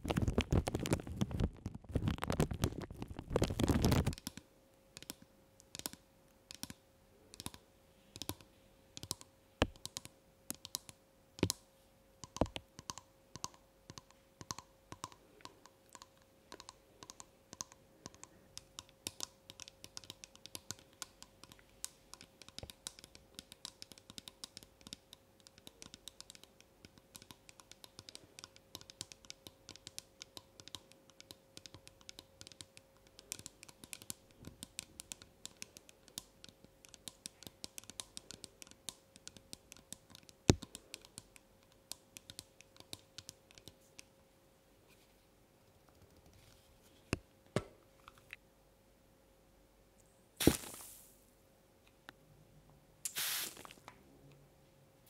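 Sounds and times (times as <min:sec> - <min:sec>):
plastic bags crinkling: 0:00.0 - 0:04.1.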